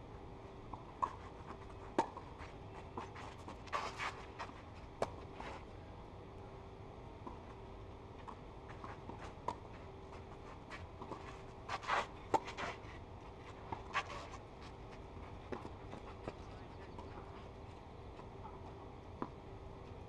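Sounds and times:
faint steady hum: 0.0s - 20.0s
shoes scraping on clay: 1.0s - 5.7s, 8.2s - 18.3s.

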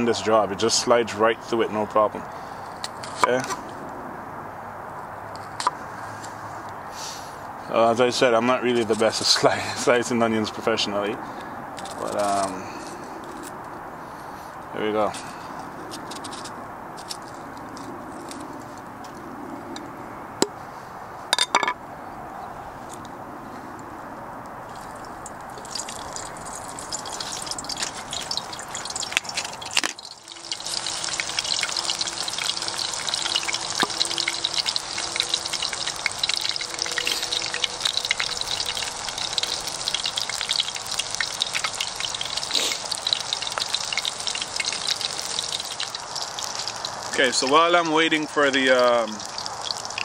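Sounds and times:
oil sizzling and crackling: 11.8s - 12.6s, 24.7s - 50.0s.

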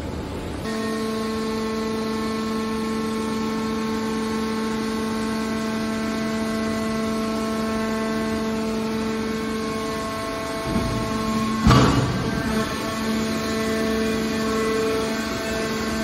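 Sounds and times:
hydraulic pump whine with hiss: 0.7s - 16.0s.

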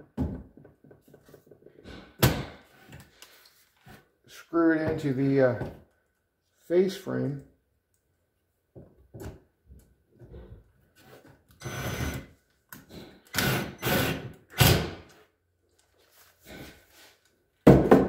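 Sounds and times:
cordless driver driving screws: 13.3s - 14.8s.

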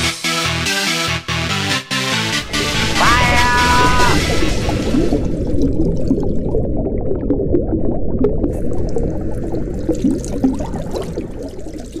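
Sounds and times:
water pouring and bubbling: 2.4s - 12.0s.

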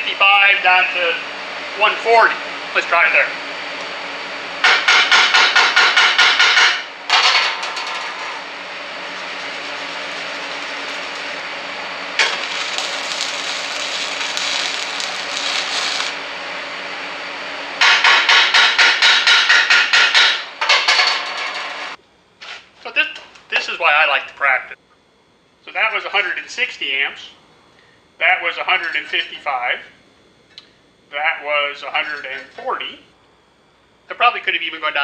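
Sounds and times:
steady hum: 0.0s - 35.0s
chipping hammer on steel: 4.6s - 7.5s, 17.8s - 21.1s
welding arc crackling: 4.6s - 16.2s, 17.8s - 20.3s.

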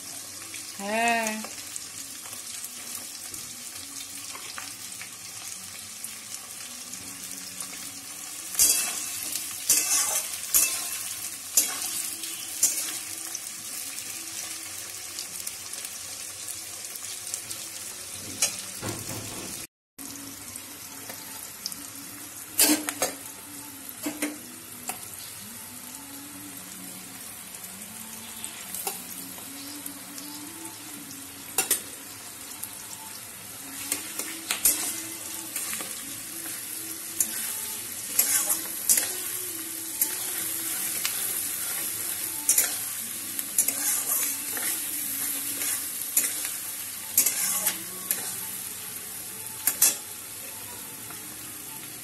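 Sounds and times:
vegetables sizzling in oil: 0.0s - 52.0s
metal spatula scraping wok: 8.6s - 13.1s, 33.8s - 36.6s, 37.2s - 39.3s, 40.0s - 42.9s, 43.5s - 48.4s.

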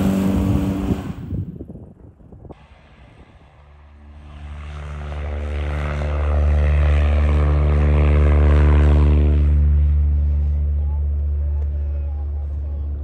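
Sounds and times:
propeller aircraft engine droning: 0.0s - 13.0s.

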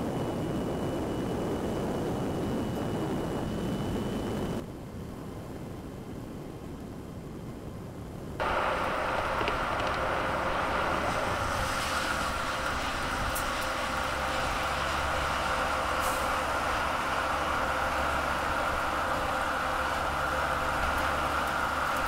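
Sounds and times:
truck road noise rushing: 8.4s - 22.0s.

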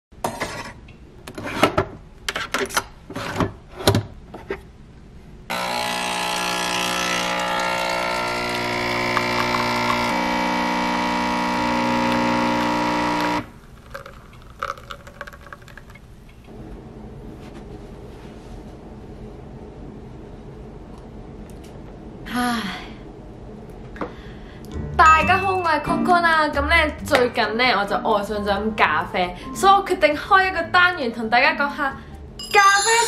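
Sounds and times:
coffee machine pump buzzing: 5.5s - 14.8s
coffee pouring into mug: 6.4s - 16.2s.

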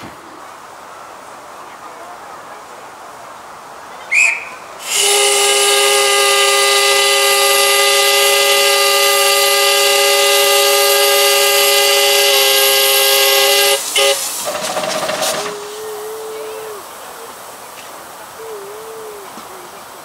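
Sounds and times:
short whistle toot: 4.1s - 5.2s
steam whistle blast: 4.1s - 15.8s.

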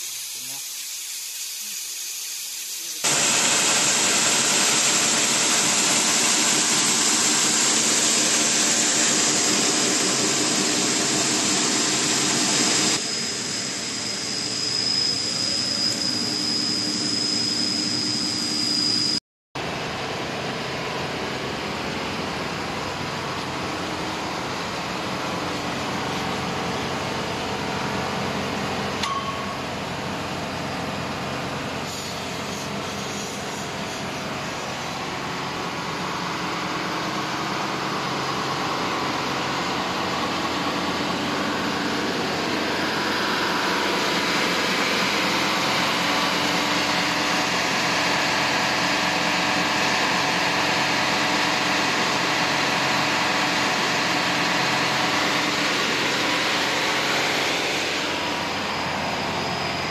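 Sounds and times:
thin high whine: 0.0s - 19.2s, 37.1s - 59.9s
belt sander running: 3.0s - 14.8s.

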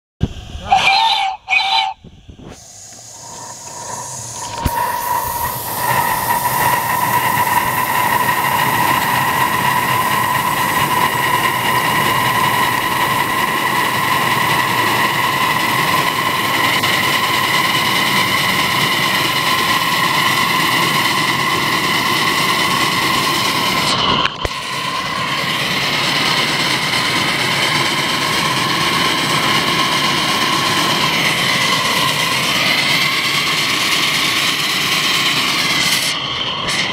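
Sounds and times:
steam hissing: 0.2s - 36.9s
train running on track: 0.2s - 36.9s
steam whistle toots: 0.5s - 26.5s.

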